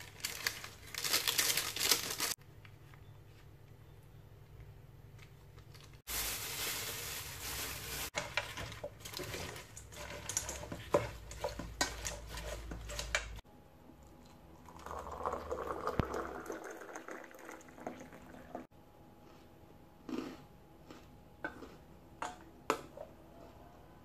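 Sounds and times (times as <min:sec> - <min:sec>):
water poured into glass: 0:14.6 - 0:18.6.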